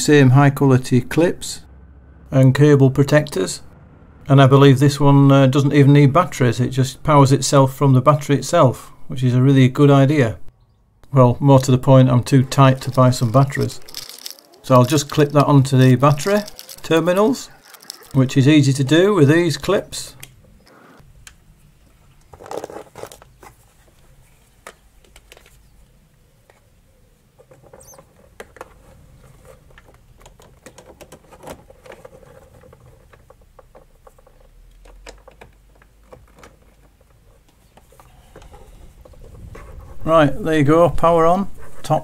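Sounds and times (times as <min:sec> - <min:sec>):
crocodile clips clicking and rattling: 0:12.6 - 0:18.2.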